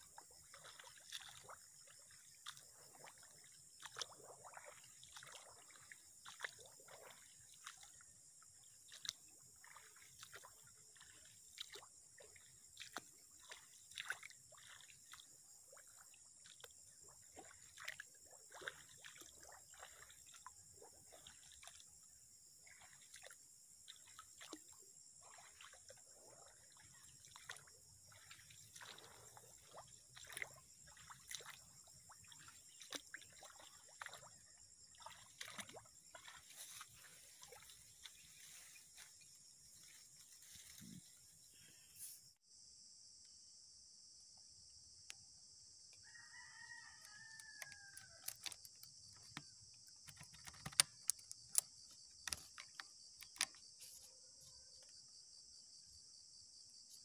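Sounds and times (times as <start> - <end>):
footsteps wading through mud: 0.0 - 22.1, 22.7 - 41.4, 47.0 - 49.1.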